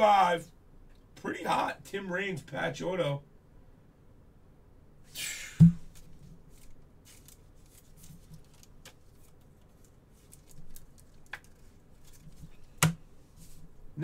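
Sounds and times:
faint clicks and rustles: 0:05.9 - 0:13.8
scraping rustle on desk: 0:11.5 - 0:13.8.

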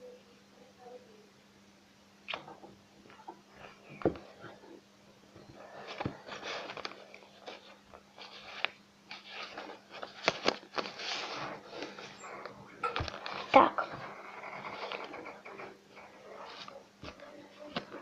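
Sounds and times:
pencil scratching on paper: 0:13.2 - 0:16.8.

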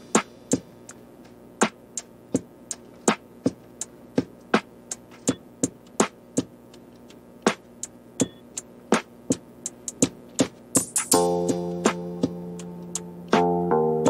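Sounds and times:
sharp percussive beat: 0:07.4 - 0:13.6.

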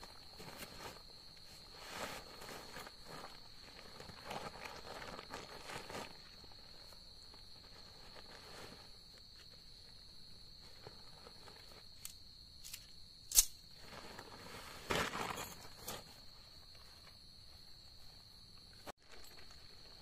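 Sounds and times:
tent fabric rustling: 0:00.0 - 0:12.1, 0:13.7 - 0:20.0
insects trilling: 0:00.0 - 0:20.0
sharp click: 0:12.0 - 0:13.6.

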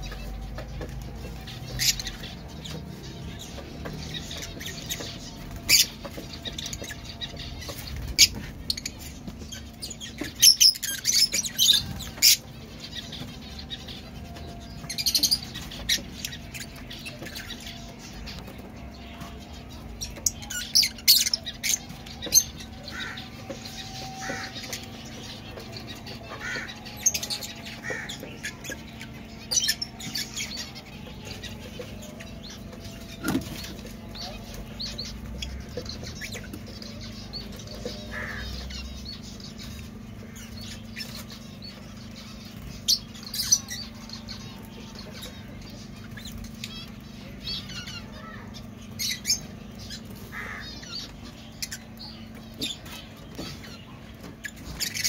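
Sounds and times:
lovebirds chirping: 0:00.0 - 0:55.0.

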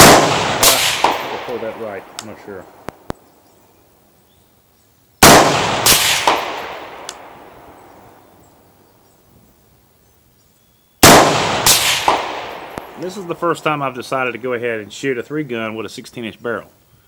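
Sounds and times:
rifle shots with rolling echo: 0:00.0 - 0:03.3, 0:05.2 - 0:08.4, 0:11.0 - 0:14.4.

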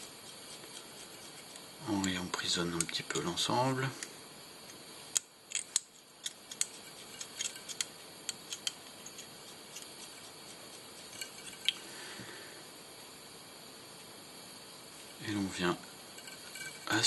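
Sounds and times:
light clicks and ticks: 0:02.0 - 0:03.0.

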